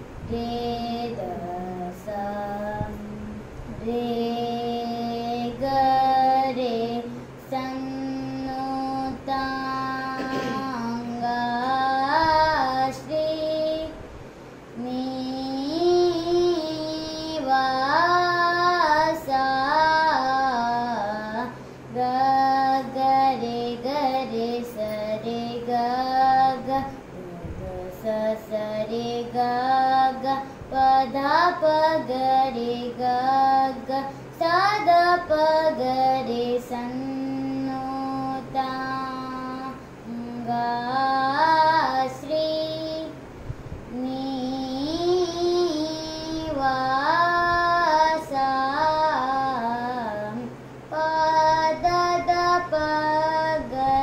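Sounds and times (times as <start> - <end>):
boy singing: 0.0 - 54.0
breaths: 21.6 - 21.9.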